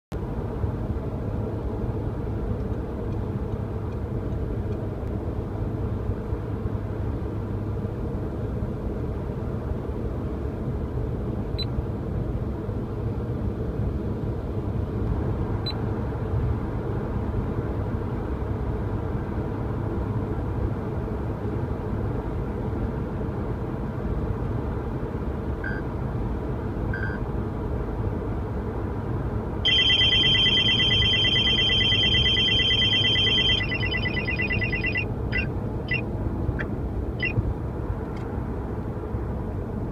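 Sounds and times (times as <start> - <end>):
car cabin road and engine noise: 0.1 - 39.9
faint short beeps: 29.7 - 36.0.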